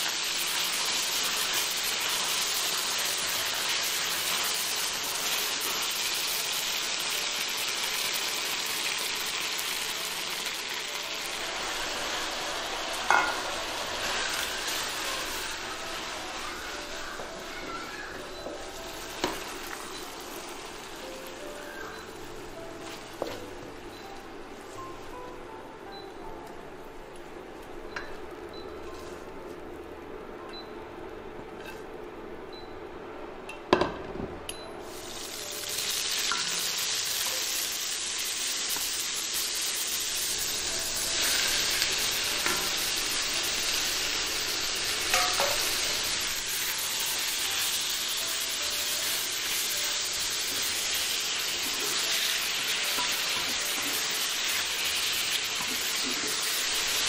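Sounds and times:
vegetables sizzling in hot oil: 0:00.0 - 0:25.1, 0:34.8 - 0:57.0
spatula clinking against pan: 0:45.1 - 0:45.7.

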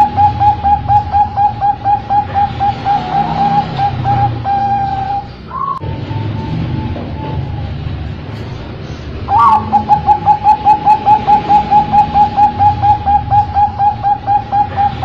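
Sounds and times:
dove cooing: 0:00.0 - 0:05.8, 0:09.3 - 0:15.0.

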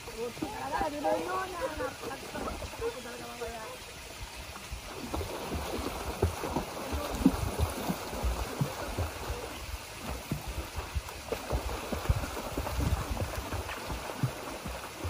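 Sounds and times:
water splashing from kicking legs: 0:04.2 - 0:15.0.

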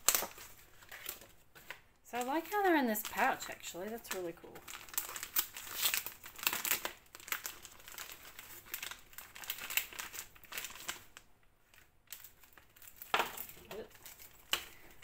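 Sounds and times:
plastic bag crinkling: 0:00.0 - 0:15.0.

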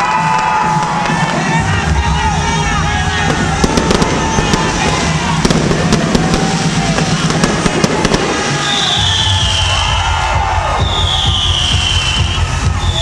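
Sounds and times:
fireworks crackling and popping: 0:00.0 - 0:09.9
fireworks roar: 0:00.0 - 0:12.4
high descending whistle: 0:08.4 - 0:13.0.

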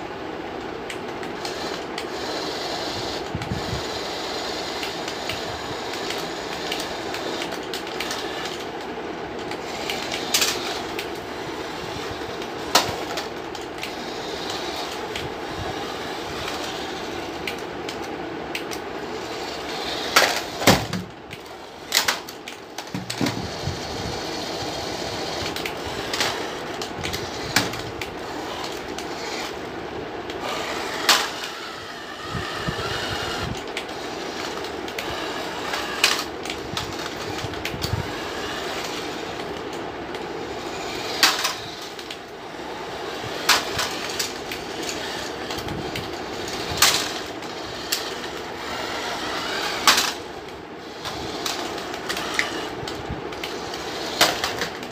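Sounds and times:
toy car motor whirring: 0:00.9 - 0:29.7, 0:30.3 - 0:54.9
plastic clack: 0:49.8 - 0:50.2.

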